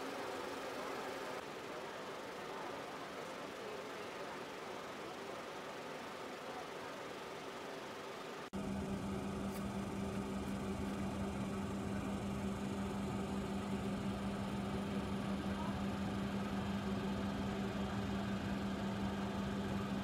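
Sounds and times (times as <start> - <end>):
airplane cabin drone: 8.6 - 20.0.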